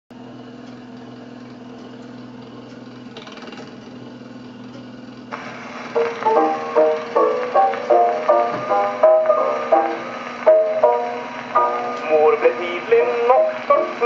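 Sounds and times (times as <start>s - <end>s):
gramophone mechanical hum: 0.1s - 14.0s
record surface hiss: 5.2s - 14.0s
repeated musical notes: 6.0s - 14.0s.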